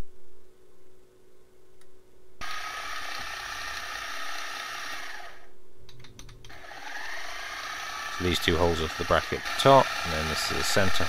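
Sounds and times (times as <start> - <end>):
steady hum: 0.0 - 11.0
milling machine cutting metal: 2.4 - 5.2, 6.5 - 11.0.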